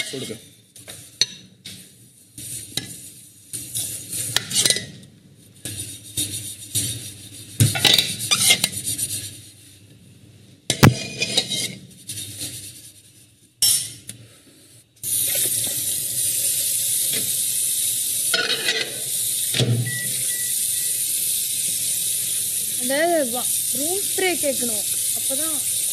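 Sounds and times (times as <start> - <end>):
tap water running: 15.0 - 25.9.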